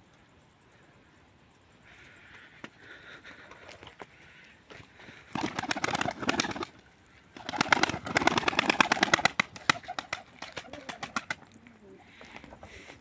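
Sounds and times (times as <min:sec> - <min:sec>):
pigeon wings flapping: 0:05.2 - 0:11.6.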